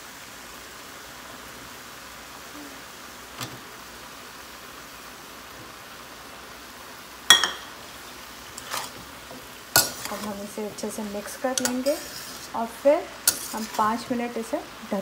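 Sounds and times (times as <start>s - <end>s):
vegetables sizzling in skillet: 0.0s - 15.0s
metal spatula striking pan: 13.2s - 13.8s.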